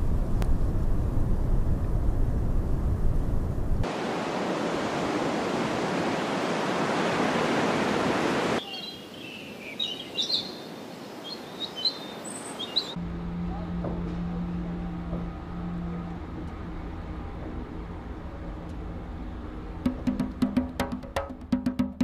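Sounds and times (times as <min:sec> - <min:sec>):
low rumble: 0:00.0 - 0:03.9, 0:13.0 - 0:19.9
birds chirping and calling: 0:08.6 - 0:13.0.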